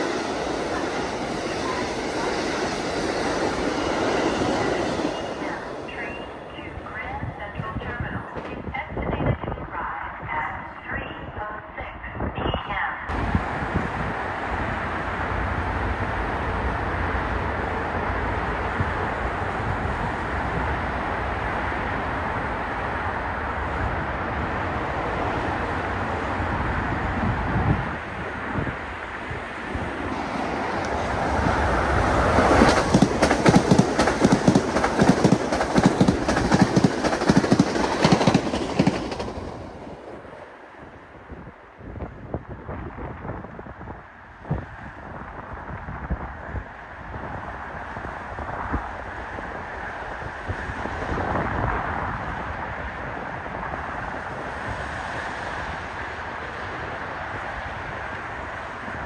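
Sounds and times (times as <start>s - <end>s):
distant trains rumbling: 0.0s - 59.0s
wind buffeting the microphone: 6.8s - 16.2s, 16.8s - 39.6s, 40.8s - 59.0s
train wheels clacking over rail joints: 32.4s - 39.4s.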